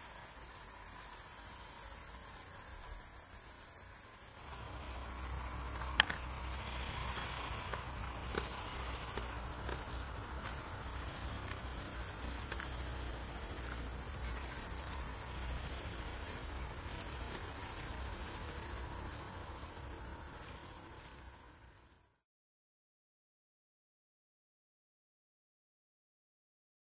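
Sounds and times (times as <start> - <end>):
insect trilling: 0.0 - 21.0.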